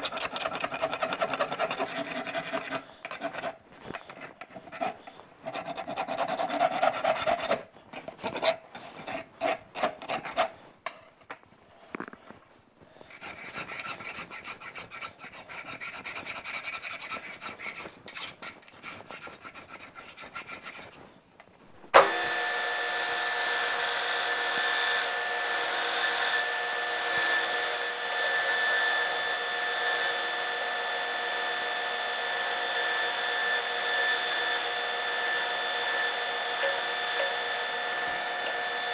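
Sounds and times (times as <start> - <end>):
hand file rasping on metal: 0.0 - 10.6, 13.1 - 21.0, 22.9 - 38.9
belt grinder whining: 22.0 - 38.9.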